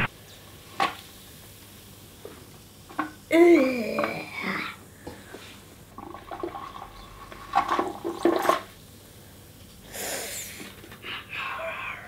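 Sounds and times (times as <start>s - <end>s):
short hiss: 9.8s - 10.8s.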